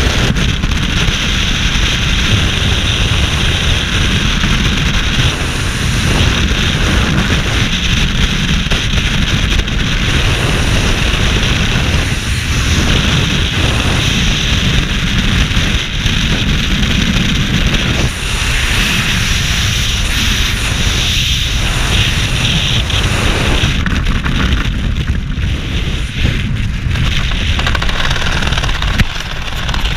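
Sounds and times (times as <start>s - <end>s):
wind buffeting microphone: 0.0s - 29.9s.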